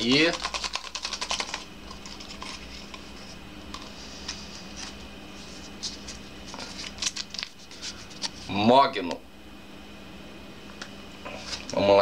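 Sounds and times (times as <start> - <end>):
paper crinkles and clicks: 0.0 - 3.0, 5.8 - 8.4.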